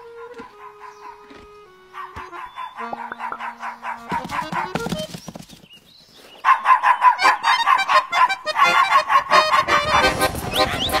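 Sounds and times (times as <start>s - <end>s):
music with whistle-like glides: 10.3s - 11.0s.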